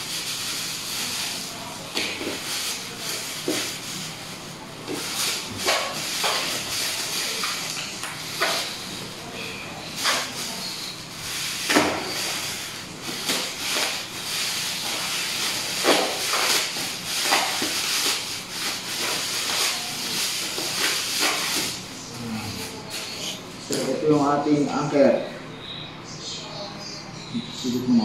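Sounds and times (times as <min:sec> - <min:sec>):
bubble wrap crinkling: 0:00.0 - 0:21.9.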